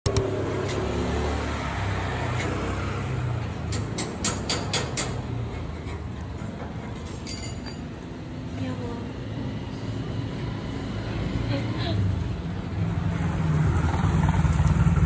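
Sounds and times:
vehicle running rumble: 9.8 - 15.0.

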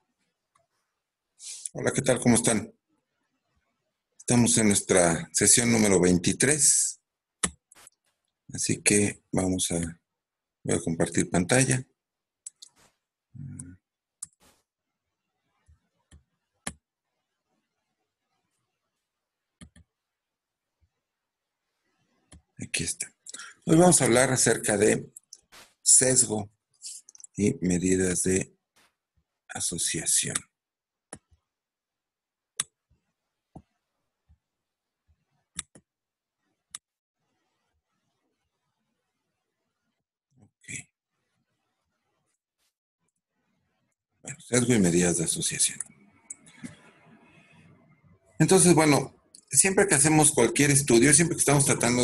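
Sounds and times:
computer mouse clicks: 19.6 - 19.9, 35.5 - 35.9
sharp clicks: 35.6 - 35.8.

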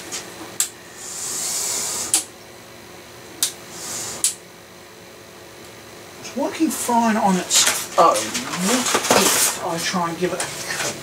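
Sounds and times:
small electric motor whirring: 0.8 - 2.3, 3.7 - 4.4
sharp click: 4.2 - 4.4.

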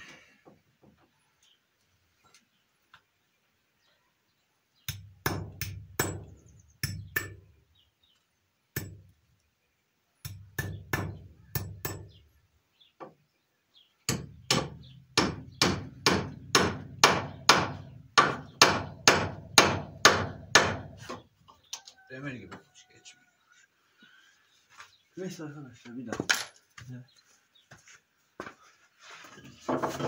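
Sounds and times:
hammer striking nail into wood: 4.9 - 7.4, 8.8 - 9.0, 10.3 - 12.1, 14.1 - 21.0.

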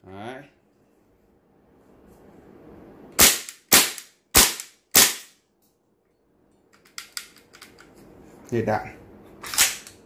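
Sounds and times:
airsoft rifle shots: 3.2 - 5.3.

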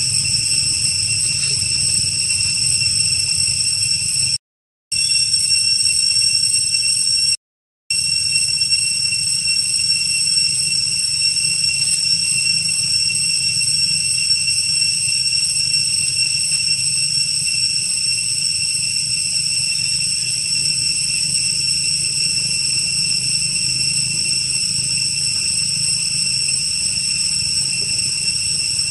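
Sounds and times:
low rumbling noise: 0.0 - 4.0
cicadas droning: 0.0 - 7.3, 7.9 - 28.9.

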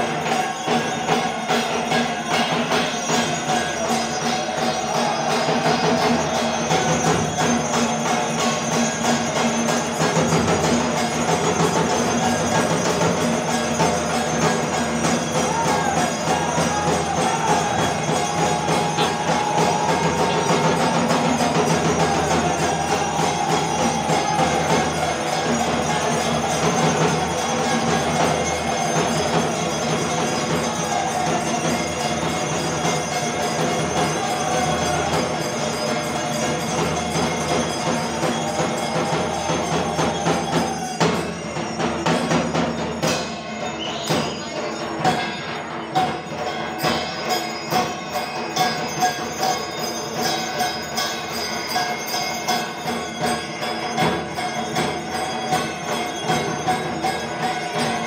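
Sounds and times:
barrel drum beating: 0.0 - 43.4
bells ringing: 0.0 - 58.0.

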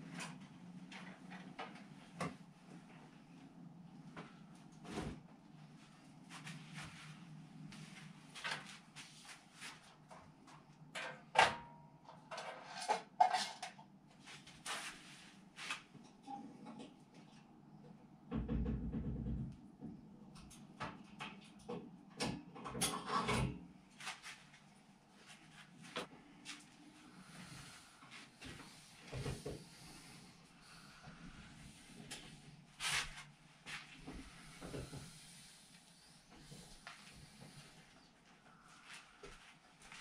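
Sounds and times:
tools and metal parts clattering: 12.2 - 13.8.

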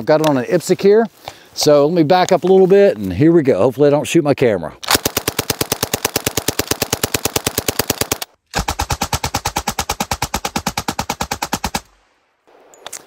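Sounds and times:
submachine gun automatic fire: 4.9 - 12.0.

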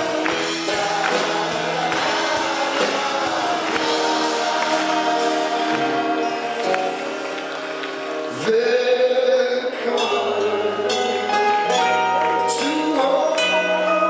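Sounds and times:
voices singing together: 0.0 - 11.6
drums: 0.0 - 14.0
guitars: 0.0 - 14.0.

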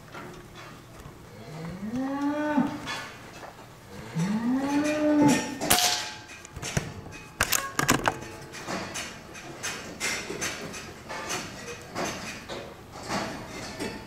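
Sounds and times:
cows mooing: 1.3 - 3.0, 3.9 - 5.6
clicks and knocks: 5.8 - 10.6.

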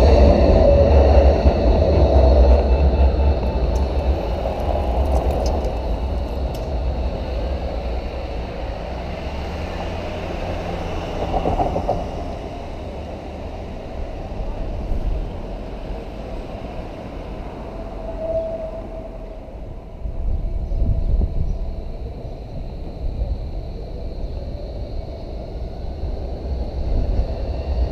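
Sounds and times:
car passing: 0.0 - 20.0
tram rolling along track: 0.0 - 27.9.

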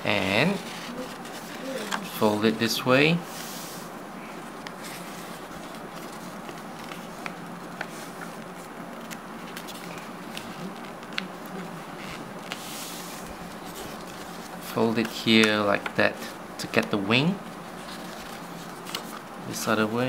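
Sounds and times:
steady background hiss: 0.0 - 20.0
paper folding and rustling: 0.2 - 2.5, 3.3 - 20.0.

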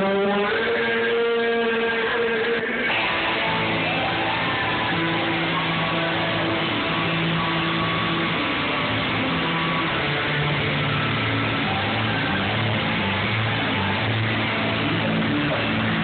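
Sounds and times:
distorted electric guitars: 0.0 - 16.0
bass holding low notes: 3.0 - 16.0.

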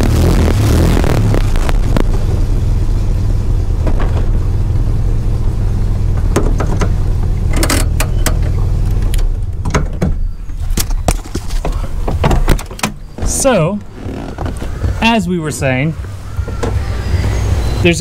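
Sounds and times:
car engine running: 0.0 - 18.0
sharp clicks and rattles: 6.1 - 15.1.

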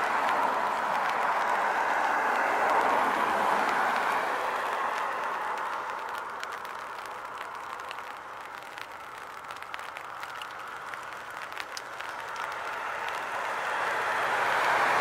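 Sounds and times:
road traffic hiss: 0.0 - 15.0
faint ticks: 5.0 - 13.4.

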